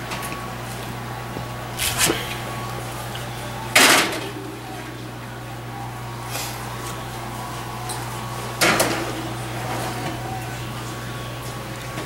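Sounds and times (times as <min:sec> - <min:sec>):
steady low hum: 0:00.0 - 0:12.0
baking sheet scraping on rack: 0:01.8 - 0:02.5.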